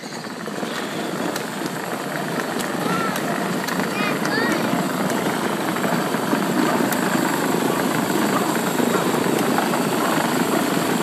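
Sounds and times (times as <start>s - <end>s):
toy truck rolling rattle: 0.0s - 11.0s.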